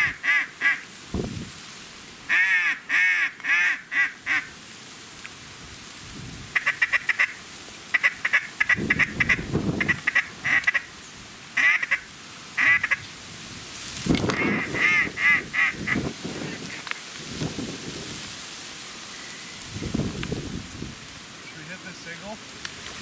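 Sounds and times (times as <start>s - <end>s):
ducks quacking: 6.6s - 10.9s, 11.6s - 13.0s, 14.3s - 16.9s.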